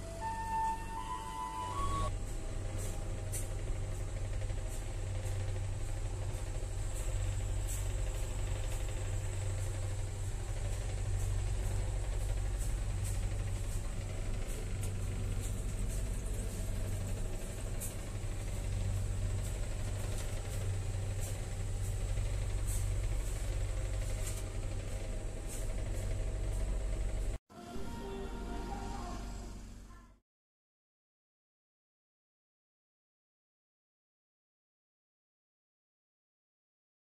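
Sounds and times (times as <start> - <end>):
faint high whine: 0.0 - 30.2
train coach low hum: 0.0 - 30.2.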